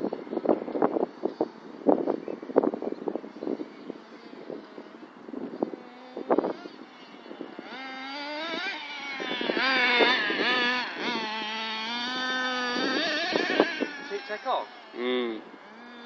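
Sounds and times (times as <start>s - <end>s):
radio-controlled truck engine revving: 3.3s - 16.0s.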